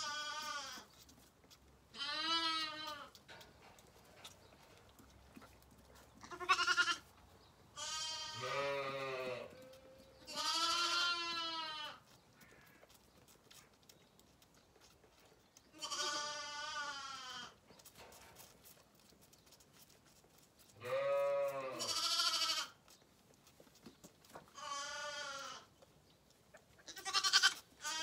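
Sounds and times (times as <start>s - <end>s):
lambs bleating: 0.0s - 0.9s, 1.9s - 3.2s, 6.2s - 7.1s, 7.7s - 12.8s, 15.7s - 17.6s, 20.8s - 22.8s, 24.5s - 25.7s, 26.8s - 28.0s.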